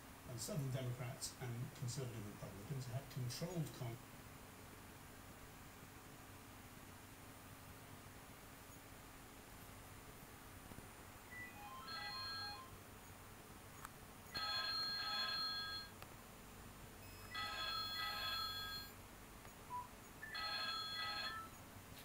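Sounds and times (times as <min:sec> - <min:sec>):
electronic beeps: 0:11.3 - 0:12.0
electronic telephone ringing: 0:11.3 - 0:12.7, 0:14.3 - 0:16.0, 0:17.0 - 0:19.0, 0:20.2 - 0:21.6.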